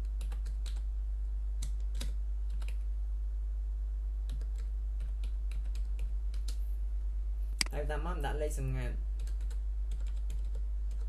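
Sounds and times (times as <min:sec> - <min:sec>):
steady low hum: 0:00.0 - 0:11.0
computer keyboard typing: 0:00.1 - 0:00.8, 0:01.6 - 0:02.8, 0:04.3 - 0:06.6, 0:09.2 - 0:11.0.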